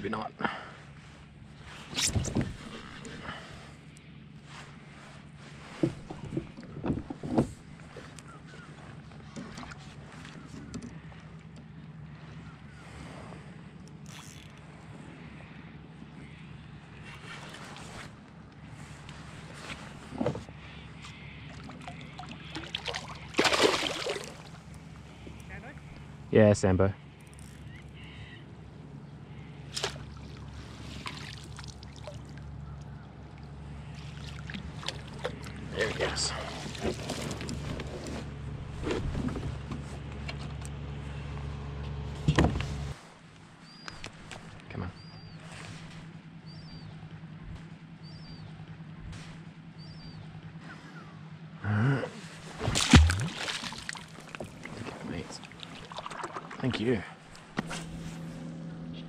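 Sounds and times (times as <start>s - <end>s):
faint low hum: 0.0s - 59.0s
water lapping against kayak hull: 4.7s - 11.7s, 18.8s - 26.1s, 29.6s - 40.3s, 52.2s - 58.4s
fish splashing in water: 21.5s - 24.7s, 29.7s - 32.9s, 33.8s - 35.7s, 52.5s - 54.7s, 55.4s - 56.6s.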